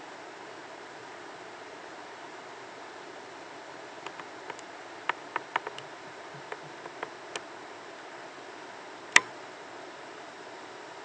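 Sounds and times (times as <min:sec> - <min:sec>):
sharp clicks: 0:04.0 - 0:07.4, 0:09.1 - 0:09.3.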